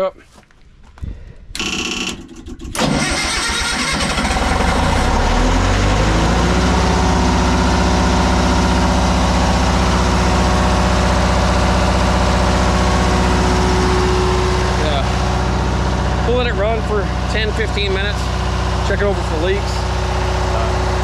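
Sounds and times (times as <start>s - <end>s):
diesel generator engine starting: 1.5s - 21.0s.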